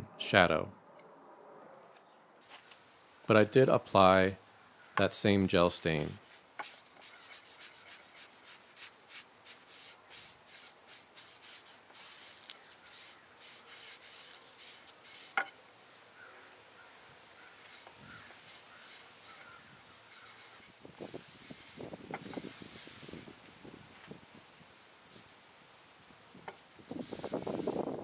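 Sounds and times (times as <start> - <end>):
applicator pad rubbing wood: 6.0 - 15.5, 17.6 - 23.2.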